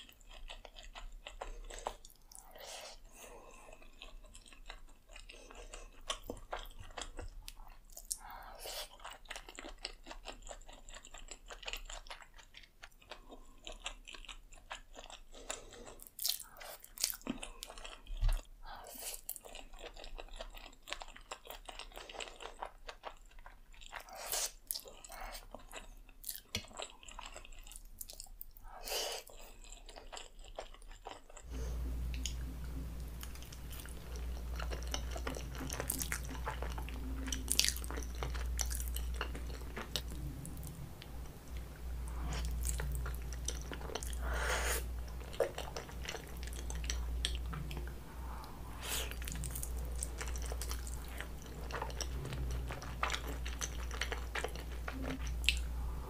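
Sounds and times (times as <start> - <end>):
wet chewing mouth sounds: 0.0 - 56.0
steady low hum: 31.4 - 56.0.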